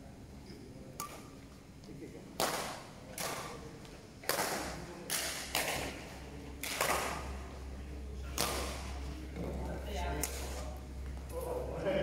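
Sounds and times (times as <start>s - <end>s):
badminton racket hitting shuttlecock: 6.6s - 7.3s, 8.3s - 9.0s.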